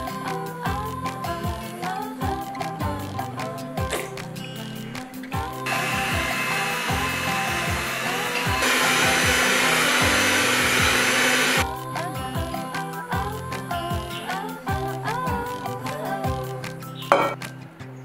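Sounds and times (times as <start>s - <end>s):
electric mixer whirring: 5.6s - 11.6s.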